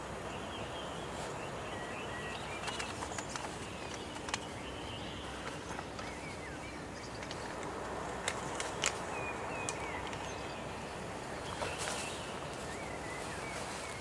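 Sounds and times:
steady background hiss: 0.0 - 14.0
dry leaves rustling: 7.4 - 14.0.

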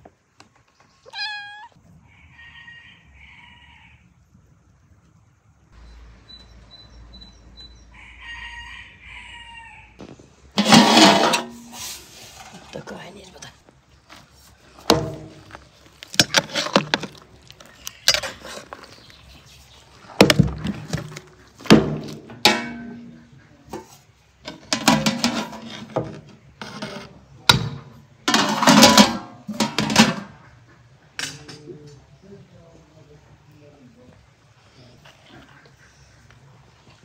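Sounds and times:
metal spoon clanking on pot: 22.3 - 23.3, 24.5 - 26.1, 27.5 - 30.4.

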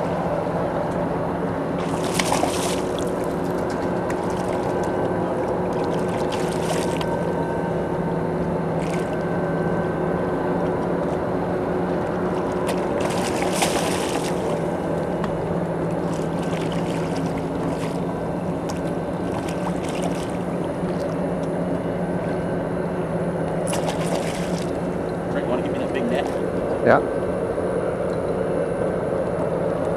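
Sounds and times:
boat motor humming: 0.0 - 29.9
fish splashing at surface: 1.8 - 4.9, 5.7 - 7.2, 8.8 - 9.2, 12.4 - 14.7, 16.0 - 21.1, 23.6 - 24.9.

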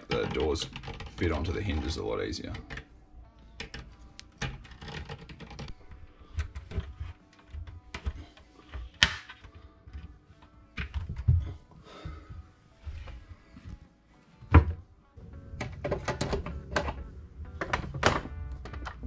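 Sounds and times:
cabinet hinges clicking and knocking: 6.3 - 10.2, 10.8 - 11.5, 14.5 - 14.8, 15.5 - 19.0.

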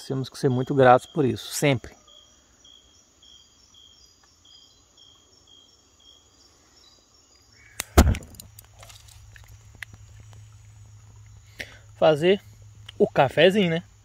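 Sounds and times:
tree frogs calling: 0.0 - 8.0
insect drone: 0.0 - 14.0
sharp knocks: 7.9 - 8.4.

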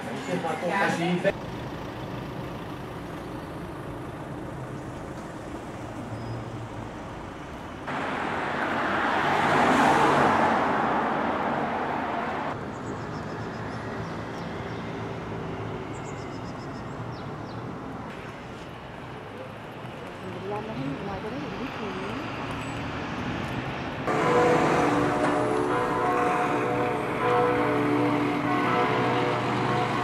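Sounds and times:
city road traffic: 0.0 - 30.0
vehicle passing close: 7.9 - 12.6, 20.9 - 30.0.

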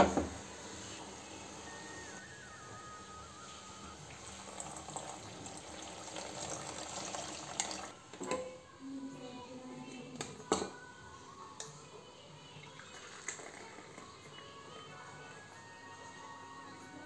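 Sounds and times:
milk pouring into saucepan: 4.1 - 8.0, 12.6 - 14.3.

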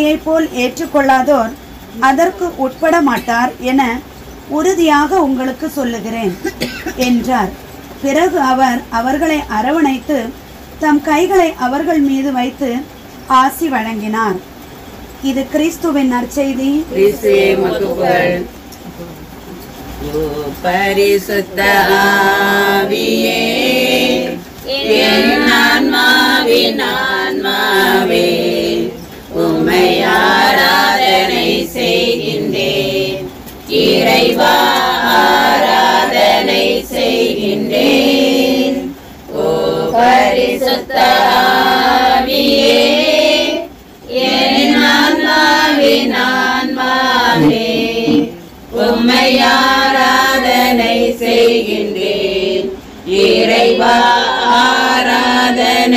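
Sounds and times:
group singing a hymn: 16.8 - 18.7, 20.0 - 55.9.

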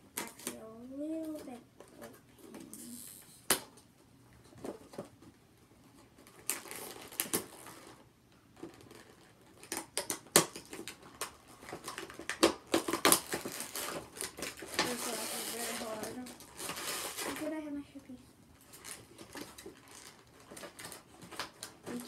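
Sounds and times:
plastic packaging crinkling: 6.0 - 17.8, 18.6 - 22.0.

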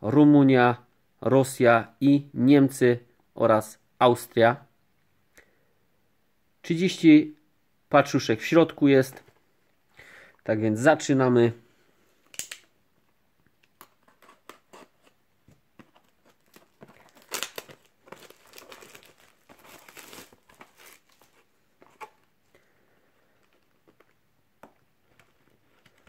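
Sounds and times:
cardboard box crinkling and tearing: 16.0 - 22.1.

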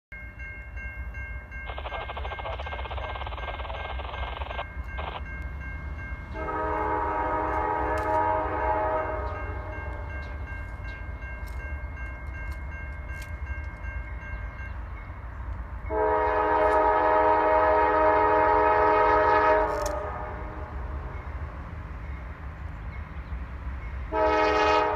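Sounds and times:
crossing warning bell ringing: 0.1 - 24.9
train air horn blasts: 6.3 - 10.1, 15.9 - 20.8, 24.1 - 24.9.

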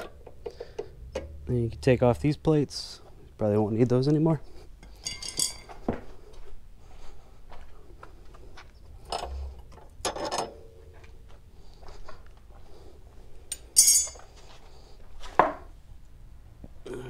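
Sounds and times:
metal plates clinking on concrete: 4.8 - 5.8, 13.5 - 14.3
metal jangling clatter: 4.9 - 5.8, 13.6 - 14.2.

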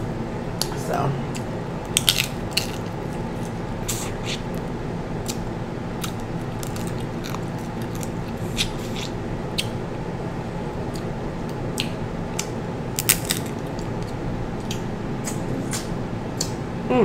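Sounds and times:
steady low hum: 0.0 - 17.0
crab legs bitten and cracked: 1.9 - 4.1, 6.0 - 9.8, 11.8 - 13.9.

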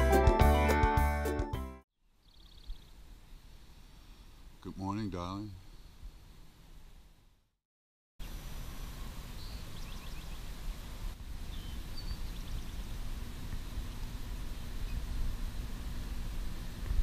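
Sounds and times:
high bird chirps: 2.2 - 2.9, 11.5 - 12.9.

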